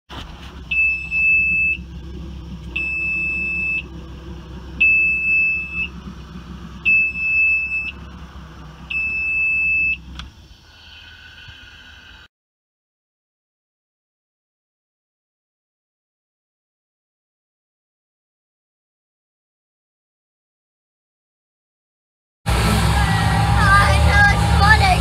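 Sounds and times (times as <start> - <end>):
low engine rumble: 0.1 - 12.3, 22.5 - 25.0
warning buzzer beeping: 8.9 - 10.0.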